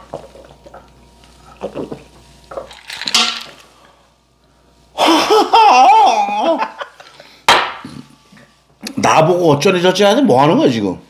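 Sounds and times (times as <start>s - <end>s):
person gulping drink: 1.4s - 2.1s
cutlery and dishes clinking: 2.7s - 3.5s.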